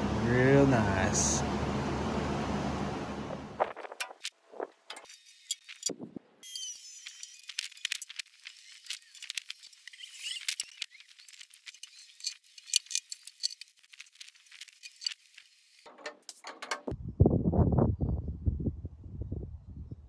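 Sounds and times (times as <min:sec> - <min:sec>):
wooden slats clicking and tapping: 0:15.9 - 0:16.9.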